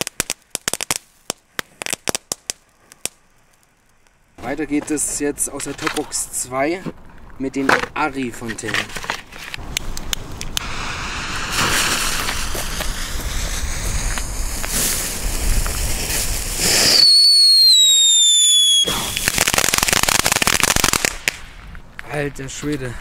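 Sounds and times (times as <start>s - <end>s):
firework crackling: 0.0s - 4.6s, 9.3s - 21.8s
firework sparks hissing: 9.6s - 21.6s
loud descending firework whistle: 16.6s - 19.4s.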